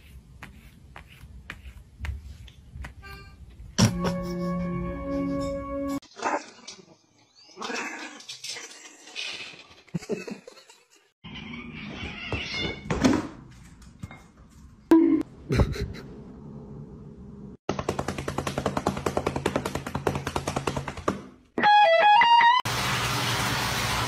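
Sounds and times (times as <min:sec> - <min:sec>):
cats crying: 0:11.3 - 0:12.8.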